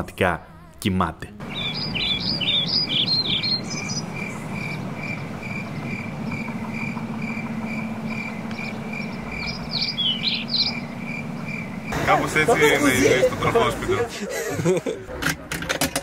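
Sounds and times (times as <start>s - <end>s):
cricket chirping: 1.4s - 12.0s
high bird-like chirps: 1.4s - 12.0s
low steady hum: 1.4s - 15.0s.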